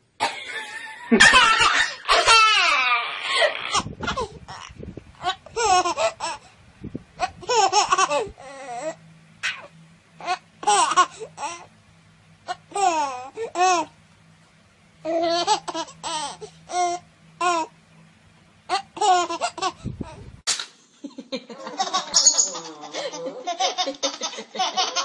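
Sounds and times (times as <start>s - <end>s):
baby laughing and squealing: 1.2s - 6.4s, 7.2s - 11.7s, 15.1s - 17.7s, 18.7s - 20.2s.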